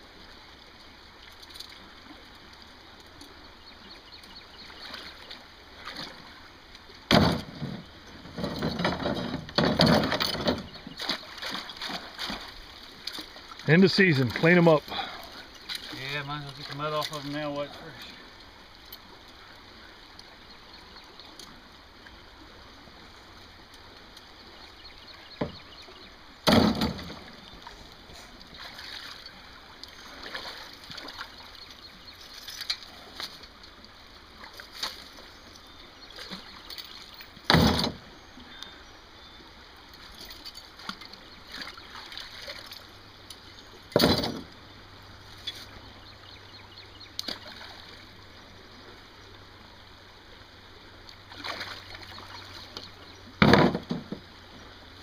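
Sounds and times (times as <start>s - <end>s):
water sloshing and splashing: 0.2s - 38.8s, 39.6s - 55.0s
loud knocks: 7.1s - 10.7s, 53.4s - 54.2s.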